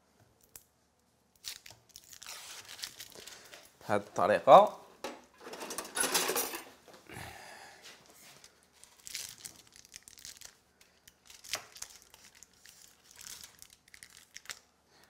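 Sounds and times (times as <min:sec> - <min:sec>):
foil wrapper crinkling and tearing: 0:01.3 - 0:03.6, 0:08.7 - 0:14.7.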